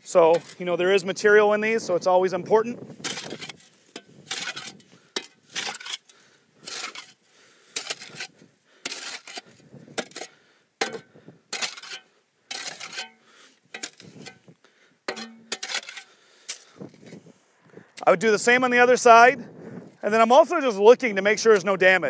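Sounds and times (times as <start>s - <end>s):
shovel scraping dirt from metal: 0.0s - 1.0s, 2.8s - 17.3s.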